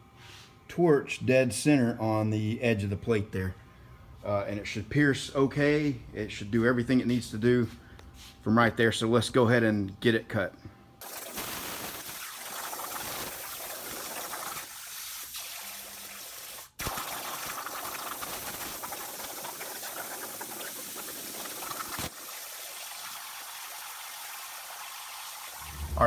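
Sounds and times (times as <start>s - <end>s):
plasma torch hissing: 11.0s - 14.9s
air bubbling water: 11.0s - 15.4s, 16.8s - 23.2s.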